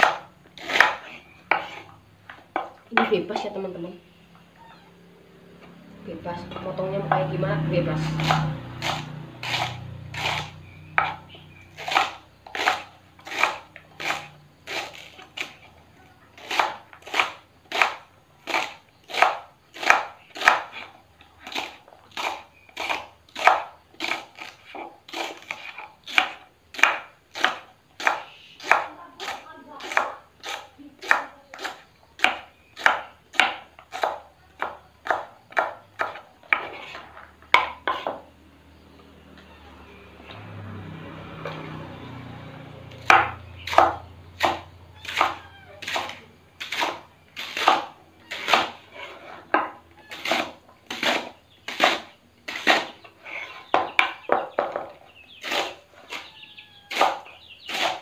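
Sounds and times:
knife chopping on wooden board: 0.0s - 1.9s, 8.0s - 15.6s, 16.4s - 20.9s, 21.5s - 38.3s, 42.9s - 53.0s, 56.9s - 58.0s.

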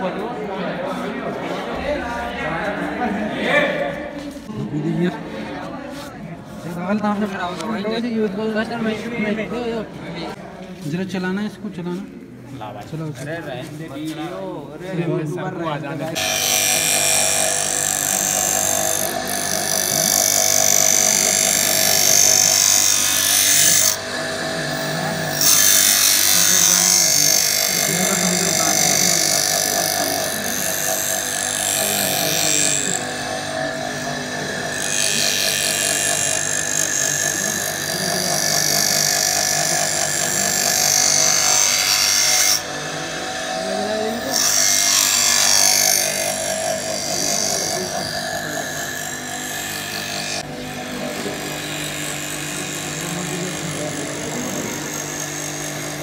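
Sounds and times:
grinder motor whine: 16.1s - 56.0s
grinding wheel hiss on metal: 16.2s - 50.4s.

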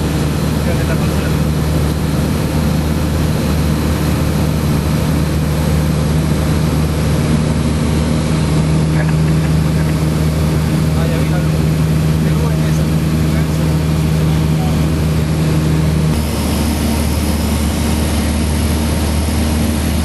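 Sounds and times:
propeller aircraft engine droning: 0.0s - 20.0s.

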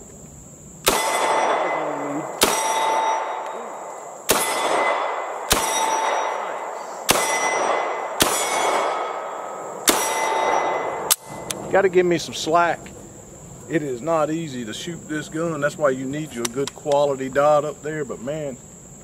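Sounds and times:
pistol shots with ringing tail: 0.8s - 11.6s.

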